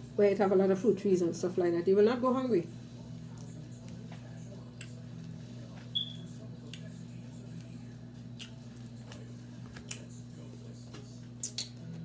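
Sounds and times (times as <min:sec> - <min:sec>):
steady low hum: 0:00.0 - 0:12.0
wet mouth smacks eating mango: 0:11.4 - 0:11.8.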